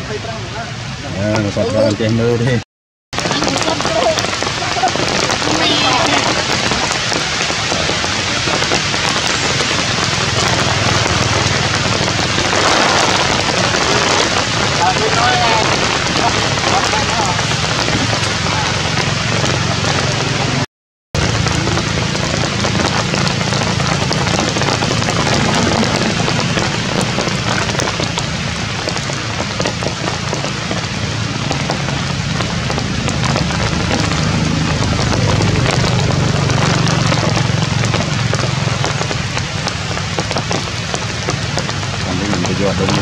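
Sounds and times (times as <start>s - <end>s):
steady rain falling: 0.0s - 43.0s
low even rumble: 21.2s - 43.0s.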